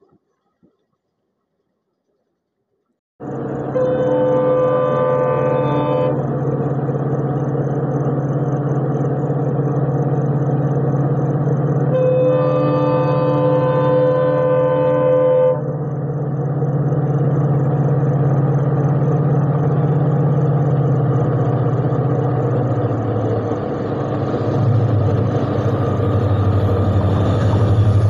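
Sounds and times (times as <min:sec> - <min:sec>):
diesel locomotive engine running: 0:03.2 - 0:28.0
train horn: 0:03.6 - 0:06.4, 0:11.9 - 0:15.8.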